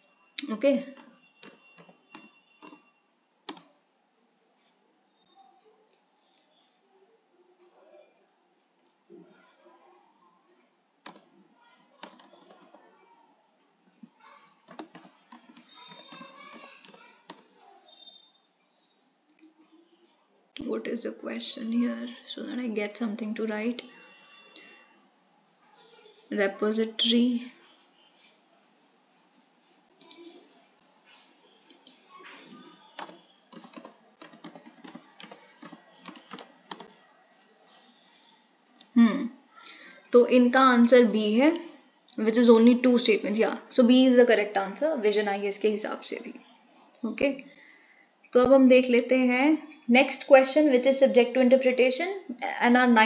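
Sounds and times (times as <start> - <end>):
computer keyboard typing: 0.4 - 2.9, 3.5 - 3.8, 11.0 - 11.3, 12.0 - 12.9, 14.6 - 17.6, 30.0 - 30.4, 31.7 - 38.0.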